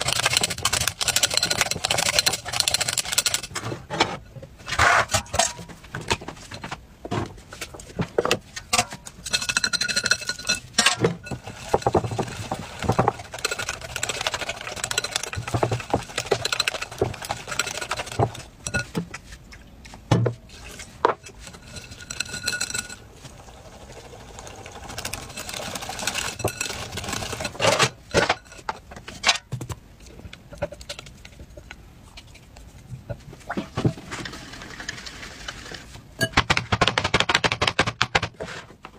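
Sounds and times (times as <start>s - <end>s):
whisk scraping a glass bowl: 0.0s - 3.5s, 9.1s - 19.0s, 20.5s - 23.3s, 24.3s - 28.7s.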